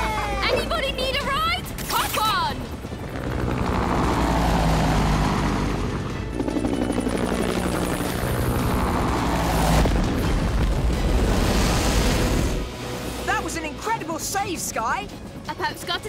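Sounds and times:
action background music: 0.1s - 16.0s
cartoon helicopter rotor chopping: 0.4s - 10.6s.

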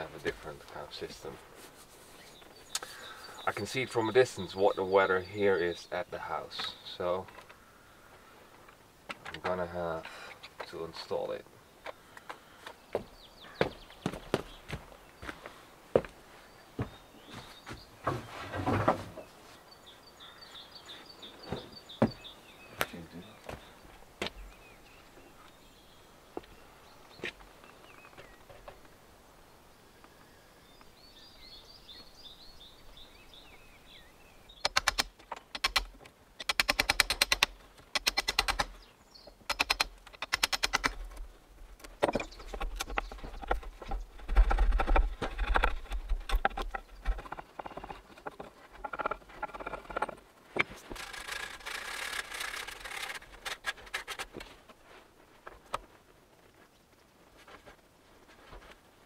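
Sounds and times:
bird chirping: 2.1s - 8.1s, 9.4s - 15.6s, 16.3s - 28.9s, 29.5s - 41.2s, 41.8s - 53.4s
tools clicking and rattling: 34.6s - 38.7s, 39.5s - 41.0s, 44.5s - 54.4s.

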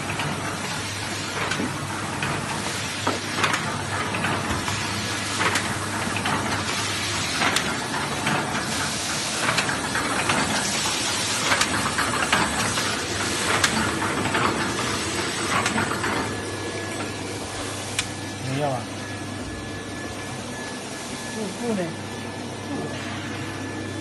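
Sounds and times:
machine clatter and hiss: 0.0s - 18.4s.

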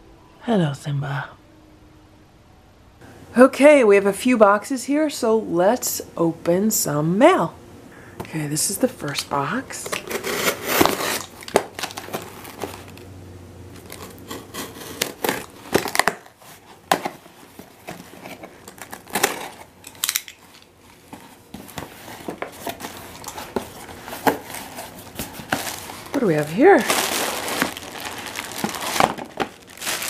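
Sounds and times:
plastic packing crinkling: 9.8s - 13.0s, 13.7s - 30.0s
knife slitting packing tape: 10.0s - 11.6s, 13.8s - 16.3s
cardboard flaps scraping: 20.8s - 30.0s.

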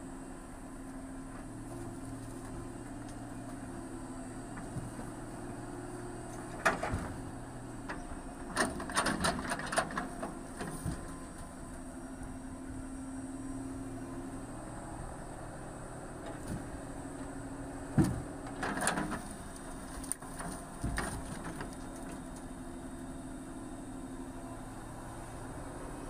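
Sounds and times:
excavator diesel engine running: 0.0s - 26.0s
logs clattering onto stack: 8.5s - 11.2s, 18.0s - 19.4s, 20.0s - 22.3s.

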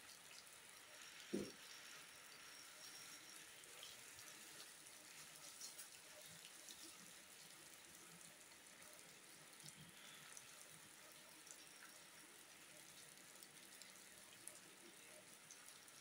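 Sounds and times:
rain hiss: 0.0s - 16.0s
raindrop ticks: 9.0s - 15.9s.

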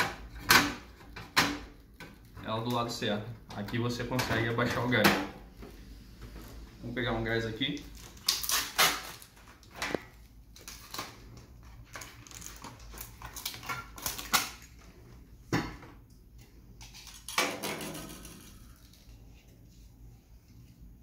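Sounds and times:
cardboard packaging rustling: 7.9s - 14.8s.

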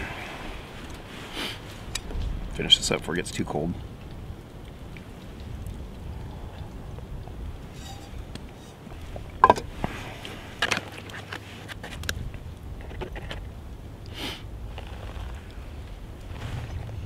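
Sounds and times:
metal cup clanking on wood: 7.7s - 8.2s, 9.4s - 9.7s.

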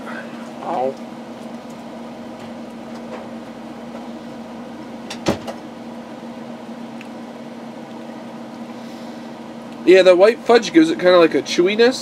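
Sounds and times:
room hum with low tone: 0.0s - 12.0s.

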